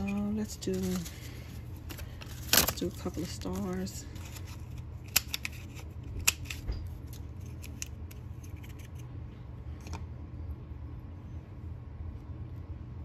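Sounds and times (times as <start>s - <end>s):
paper handling: 0.0s - 9.0s.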